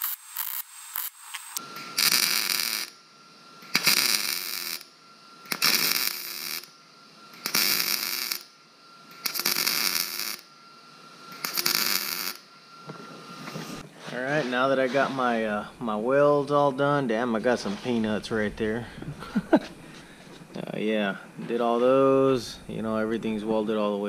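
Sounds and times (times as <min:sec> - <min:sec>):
welder arc crackling: 0:00.0 - 0:03.0, 0:03.6 - 0:10.5, 0:11.2 - 0:12.5.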